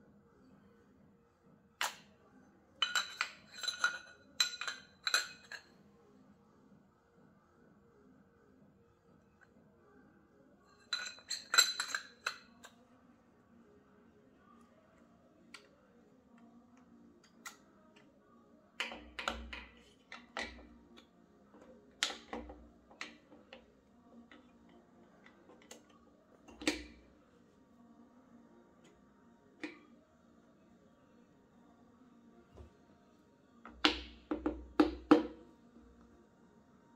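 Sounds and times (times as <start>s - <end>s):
metal tools clinking: 2.8s - 5.7s, 10.8s - 12.7s.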